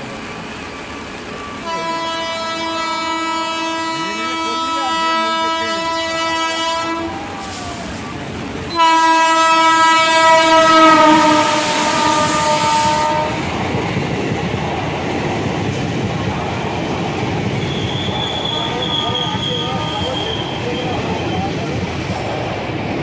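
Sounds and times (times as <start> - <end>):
train horn blasts: 1.6 - 7.5, 8.7 - 13.5
train wheels rumbling past: 4.3 - 23.0.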